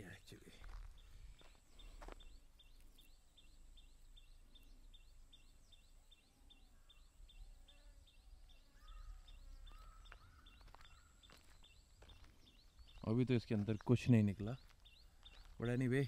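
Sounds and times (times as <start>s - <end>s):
soft bird calls: 0.0s - 16.0s.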